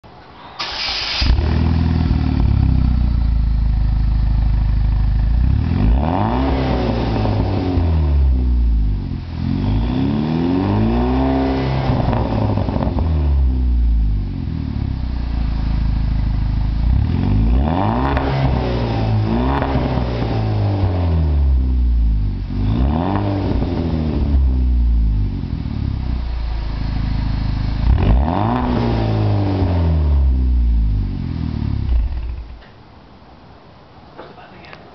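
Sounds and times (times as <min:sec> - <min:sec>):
car engine starting: 0:00.5 - 0:32.7
car engine idling: 0:00.6 - 0:05.8, 0:12.4 - 0:17.1, 0:24.4 - 0:28.0
car engine revving: 0:00.6 - 0:32.6.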